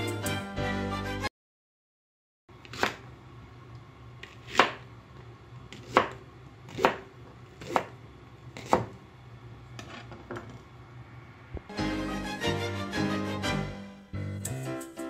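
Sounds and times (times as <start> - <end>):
knife chopping on cutting board: 2.6 - 3.0, 4.2 - 4.8, 5.7 - 8.0, 8.6 - 9.0.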